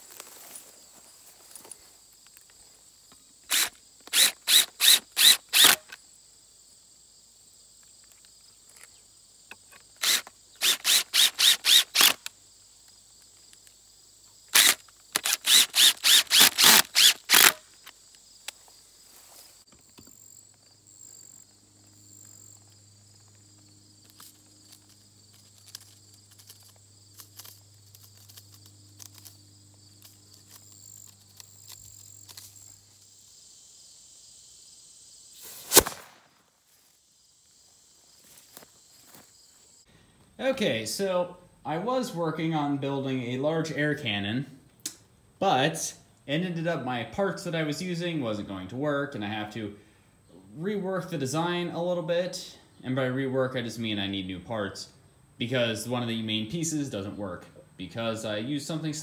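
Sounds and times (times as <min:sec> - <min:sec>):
cordless drill driving screws: 0:03.5 - 0:06.0, 0:10.0 - 0:12.3, 0:14.5 - 0:17.6.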